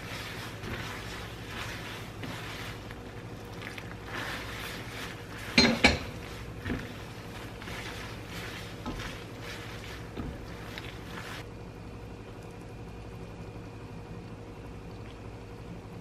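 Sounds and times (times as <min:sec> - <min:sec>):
tongs stirring pasta in pan: 0:00.0 - 0:11.4
steady low hum: 0:00.0 - 0:16.0
tongs clanking against pan: 0:05.5 - 0:06.2.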